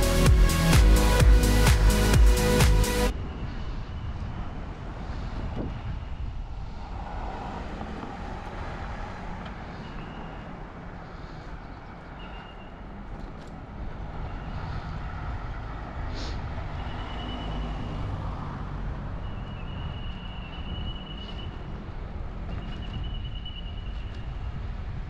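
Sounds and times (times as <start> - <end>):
bicycle tyre and road noise: 3.0 - 25.0
wind buffeting microphone: 3.1 - 9.8, 13.0 - 17.0, 17.6 - 25.0
faint traffic: 3.1 - 25.0.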